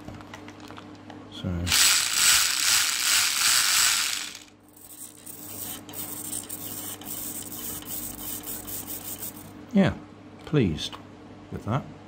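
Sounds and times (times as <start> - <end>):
toy electric motor whirring: 1.7 - 9.5.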